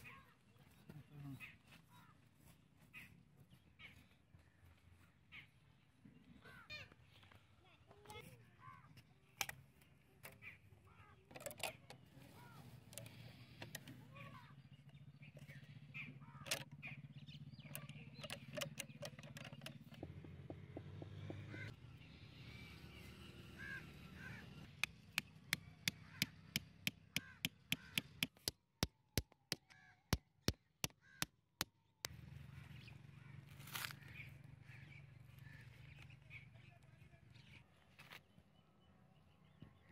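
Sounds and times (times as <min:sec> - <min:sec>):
birds calling: 0:00.0 - 0:28.6, 0:29.2 - 0:39.9
sharp clicks: 0:16.4 - 0:16.8, 0:17.6 - 0:21.7, 0:24.6 - 0:32.2.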